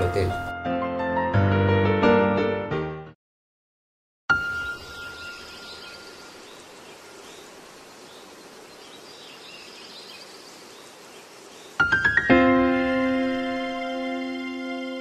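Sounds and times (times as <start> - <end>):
piano music: 0.0 - 3.2, 4.3 - 6.4, 11.8 - 15.0
faint bird chirps: 4.4 - 11.8
outdoor ambient hiss: 4.4 - 15.0.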